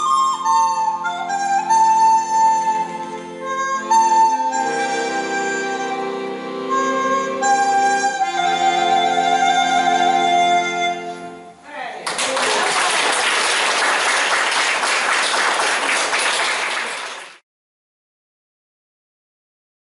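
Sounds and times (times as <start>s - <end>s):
accordion: 0.0s - 11.6s
audience applauding: 12.0s - 17.4s.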